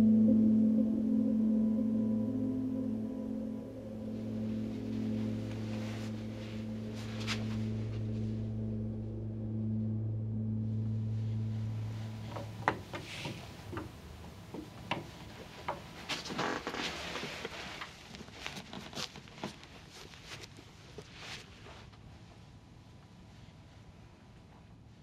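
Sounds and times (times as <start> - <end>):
low sustained drone: 0.0 - 15.6
rustling: 4.0 - 8.8, 11.0 - 25.0
light clicks and knocks: 12.3 - 16.4.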